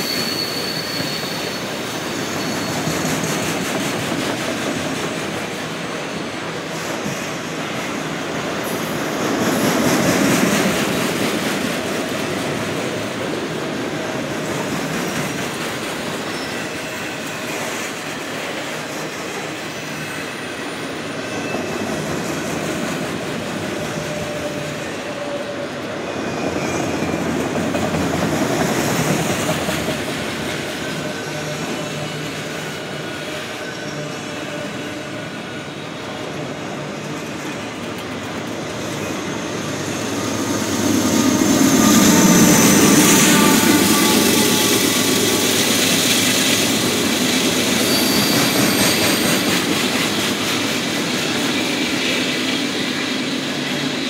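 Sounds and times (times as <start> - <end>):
faint wheel squeal: 0.0 - 3.6, 19.6 - 22.0, 38.7 - 50.1
train wheels rumbling on rail: 0.0 - 54.0.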